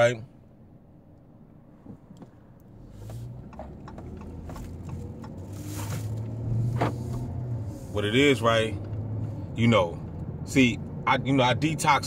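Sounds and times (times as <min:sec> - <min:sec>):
car engine and road noise: 0:00.0 - 0:12.0
light clicks and knocks: 0:03.2 - 0:05.6.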